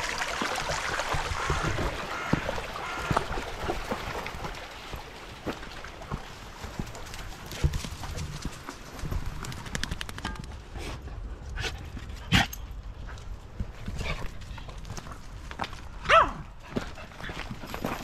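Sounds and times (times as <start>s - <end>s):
dog barking: 16.1s - 16.4s.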